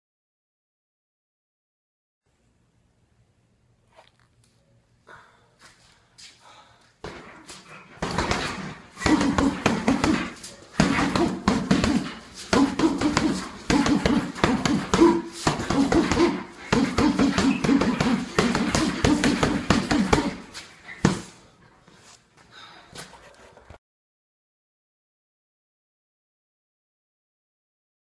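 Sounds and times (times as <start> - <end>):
speed bag being punched: 7.0 - 21.4.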